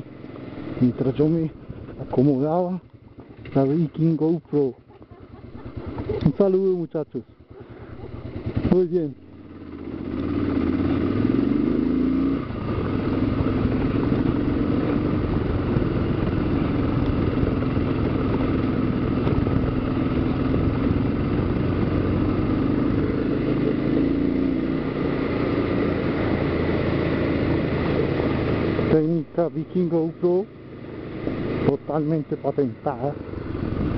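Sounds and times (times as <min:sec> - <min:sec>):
motorcycle engine running: 0:00.0 - 0:33.9.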